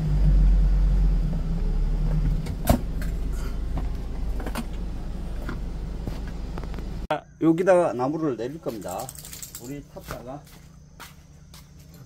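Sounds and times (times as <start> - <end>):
truck engine running: 0.0 - 7.1.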